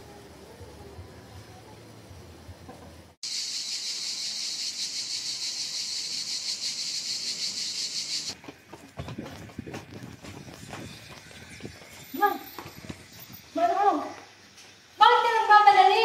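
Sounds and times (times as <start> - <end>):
insects chirring: 3.2 - 8.4.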